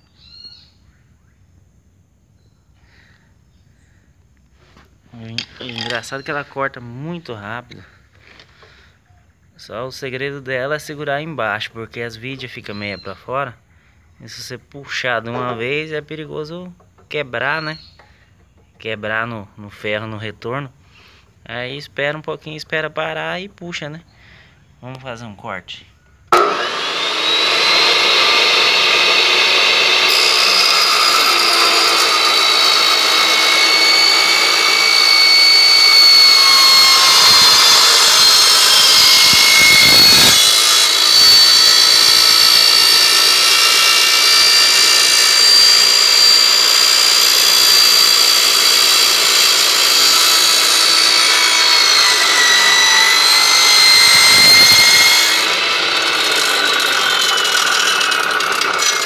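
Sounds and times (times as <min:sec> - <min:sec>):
saw motor spinning up: 0:05.4 - 0:06.3, 0:26.3 - 0:59.0
saw blade cutting steel tube: 0:05.6 - 0:06.2, 0:26.3 - 0:59.0.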